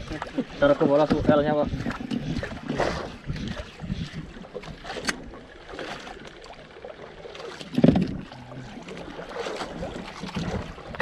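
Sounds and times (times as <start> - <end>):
wind on microphone: 0.0 - 5.0, 7.7 - 8.6, 9.7 - 11.0
water lapping against boat hull: 0.0 - 11.0.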